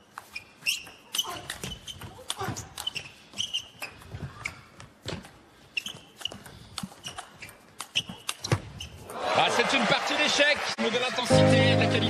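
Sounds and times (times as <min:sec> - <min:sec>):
shoes squeaking on floor: 0:00.0 - 0:09.1.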